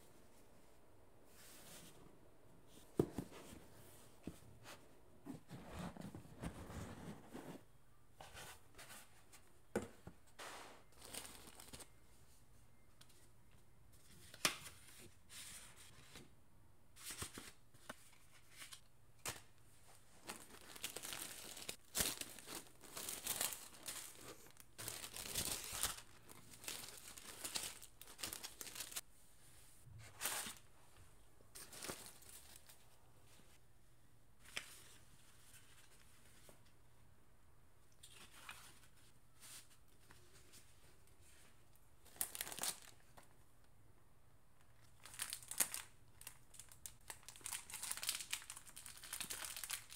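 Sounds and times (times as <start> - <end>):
tissue paper rustling: 10.4 - 11.9, 20.0 - 29.0, 47.4 - 49.9.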